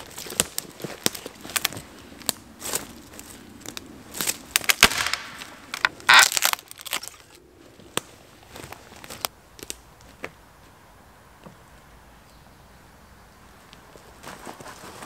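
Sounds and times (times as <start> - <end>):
wood cracking: 0.0 - 2.9, 3.7 - 10.3
wood splintering crunch: 4.1 - 7.4.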